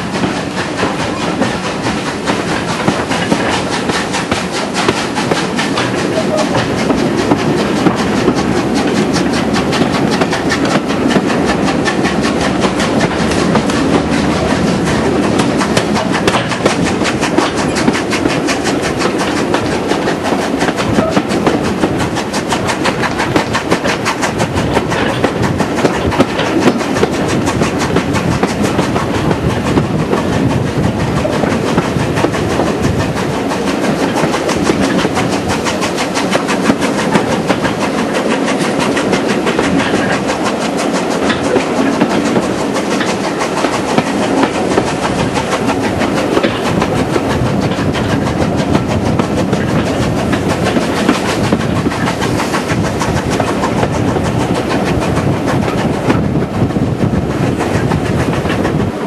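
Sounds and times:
steam locomotive working: 0.0 - 59.0
train wheels clattering on track: 0.0 - 59.0.

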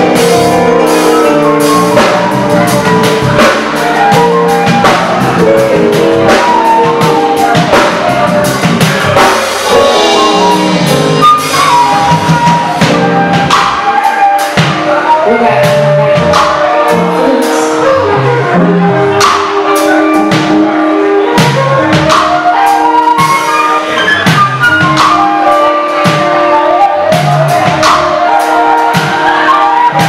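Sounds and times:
drum hits: 0.0 - 17.0
electric keyboard: 0.0 - 30.0
flute melody: 0.0 - 30.0
live band playing: 0.0 - 30.0.

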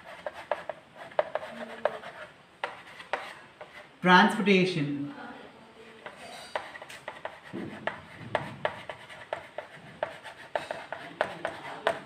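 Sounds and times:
chalk scratching on chalkboard: 0.0 - 3.9, 5.8 - 12.0.

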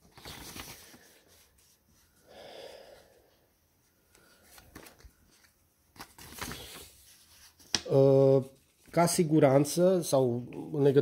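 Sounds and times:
paper leaflet rustling: 0.0 - 2.2, 4.1 - 9.3.

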